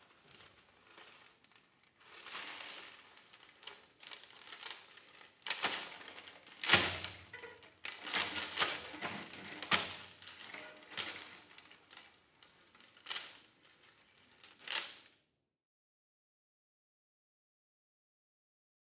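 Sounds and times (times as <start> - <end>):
metal pins rattling on a cello: 7.0 - 11.4.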